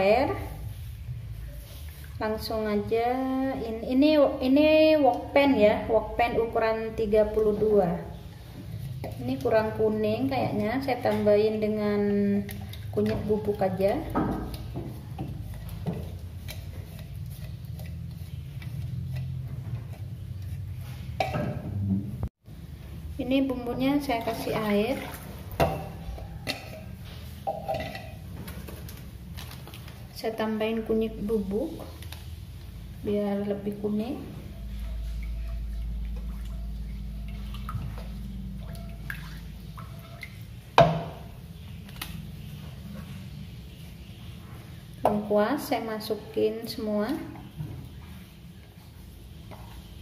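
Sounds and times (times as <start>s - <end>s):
spatula stirring liquid in wok: 8.0s - 21.3s, 24.2s - 28.3s.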